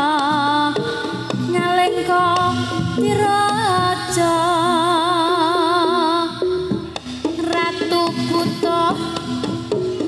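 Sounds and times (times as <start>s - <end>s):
percussion strokes: 0.0s - 4.9s.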